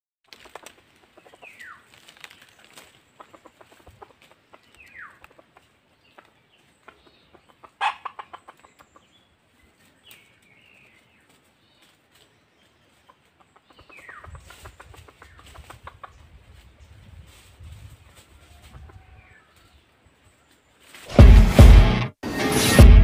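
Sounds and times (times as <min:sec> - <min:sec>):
rustling in dry leaves: 0:00.2 - 0:06.9, 0:09.3 - 0:21.2
rooster calls and clucks: 0:03.1 - 0:09.2, 0:17.4 - 0:20.0.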